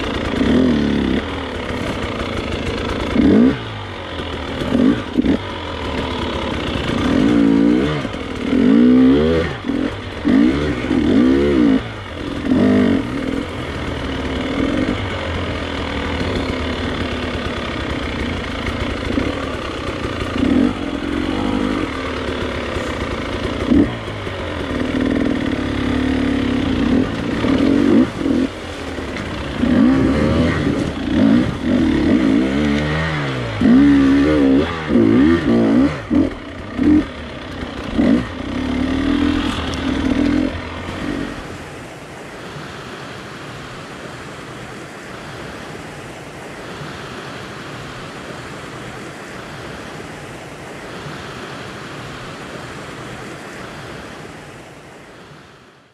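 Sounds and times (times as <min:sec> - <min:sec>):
dirt bike engine revving: 0:00.0 - 0:42.0.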